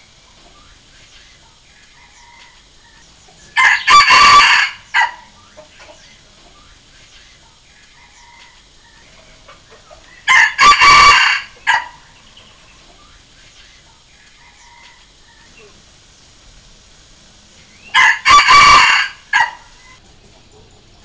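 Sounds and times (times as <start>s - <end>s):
rooster crowing: 1.9s - 5.4s, 7.9s - 9.3s, 10.0s - 12.2s, 14.4s - 15.8s, 17.7s - 20.0s.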